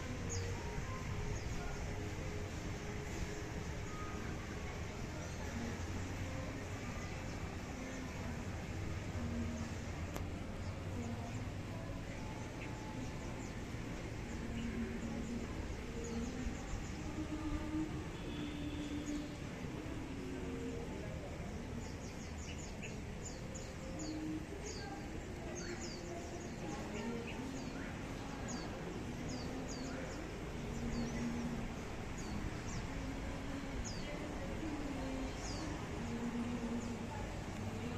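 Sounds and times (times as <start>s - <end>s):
steady low background noise: 0.0s - 37.9s
small birds chirping: 21.6s - 37.9s.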